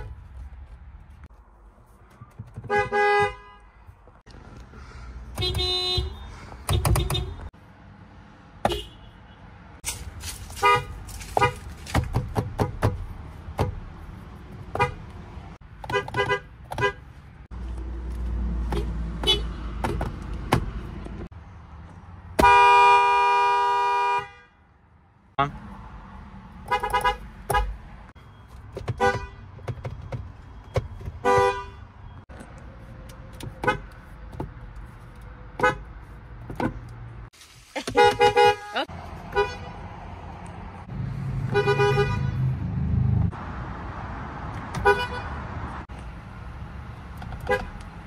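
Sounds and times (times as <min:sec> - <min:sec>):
car horns honking: 0:02.5 - 0:03.9, 0:05.3 - 0:07.6, 0:08.6 - 0:09.5, 0:10.5 - 0:11.7, 0:14.7 - 0:15.1, 0:15.8 - 0:17.1, 0:18.6 - 0:19.8, 0:22.4 - 0:24.7, 0:26.6 - 0:27.8, 0:28.8 - 0:29.8, 0:30.7 - 0:32.2, 0:33.5 - 0:34.0, 0:35.6 - 0:35.9, 0:37.8 - 0:39.8, 0:41.4 - 0:42.6, 0:44.7 - 0:45.4, 0:47.4 - 0:47.9.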